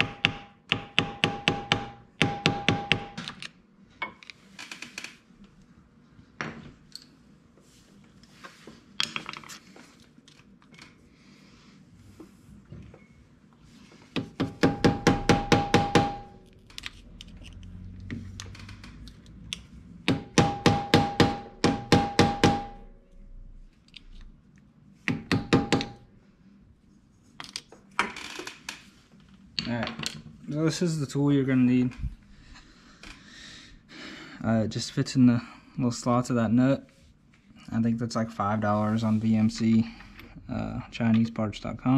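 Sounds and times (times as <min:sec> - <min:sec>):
hammer tapping metal: 0:00.0 - 0:03.2, 0:14.2 - 0:16.4, 0:20.0 - 0:22.9, 0:25.1 - 0:26.0.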